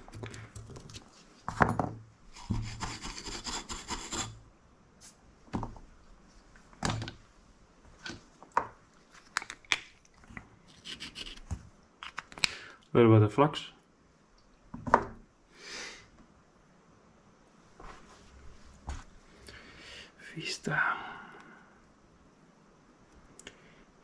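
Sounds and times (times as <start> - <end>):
rough rubbing rasp: 2.4 - 4.4.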